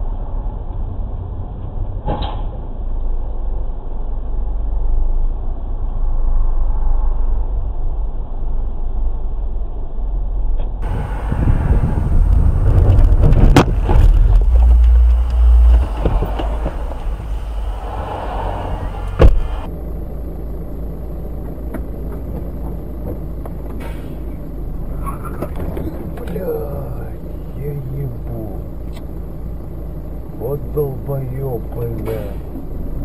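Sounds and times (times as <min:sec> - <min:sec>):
road and engine rumble: 0:00.0 - 0:33.0
sharp bangs: 0:10.8 - 0:19.7.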